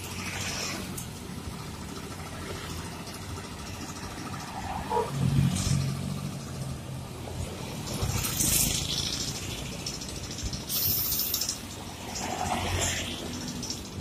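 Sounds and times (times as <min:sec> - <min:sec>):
bus diesel engine humming: 0:00.0 - 0:14.0
short bursts of hiss: 0:10.7 - 0:11.6.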